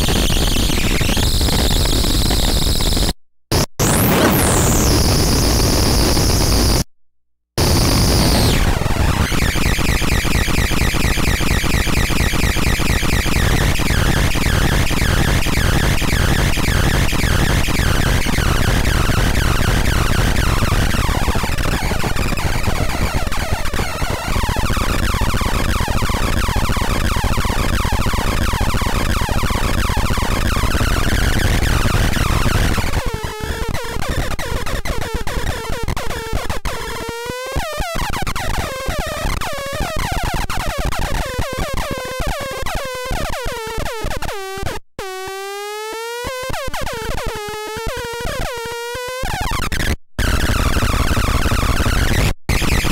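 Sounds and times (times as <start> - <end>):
noise synthesizer: 0.0 - 6.9, 7.6 - 33.2.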